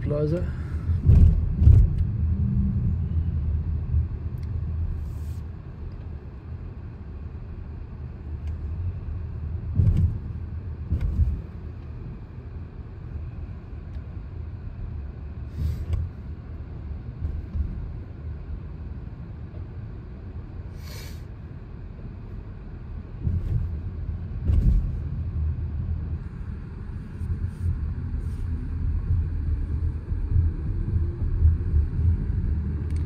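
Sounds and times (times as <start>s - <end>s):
car cabin rumble: 0.0s - 20.8s, 21.4s - 33.0s
short thumps: 1.0s - 2.0s, 9.7s - 11.5s.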